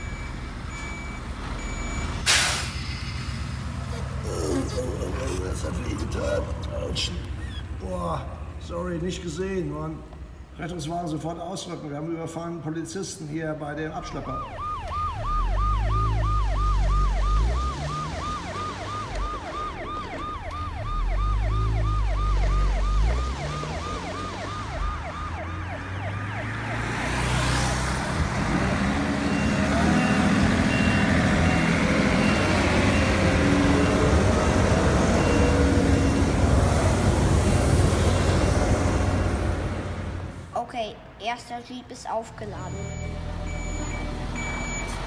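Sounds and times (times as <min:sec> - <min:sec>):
ambulance siren: 0:00.0 - 0:02.4, 0:14.0 - 0:40.2, 0:42.6 - 0:45.0
vehicle motor running: 0:03.4 - 0:10.6, 0:14.4 - 0:40.5.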